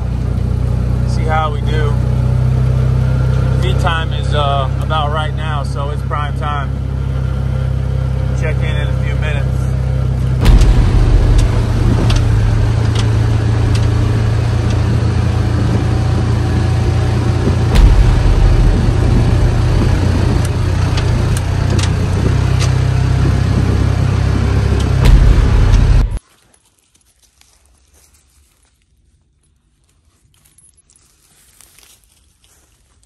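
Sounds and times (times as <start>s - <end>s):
vehicle engine running: 0.0s - 26.2s
heavy vehicle jolts: 1.1s - 26.2s
knocks and rattles: 10.2s - 16.4s, 17.1s - 23.9s, 24.7s - 26.2s.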